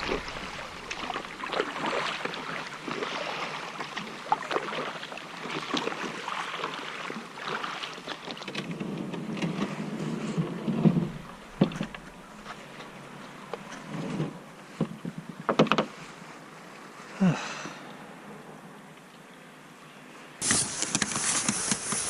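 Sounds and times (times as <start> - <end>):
low rumbling: 0.0 - 3.4, 8.7 - 14.6
paddle splashing in water: 0.0 - 14.8.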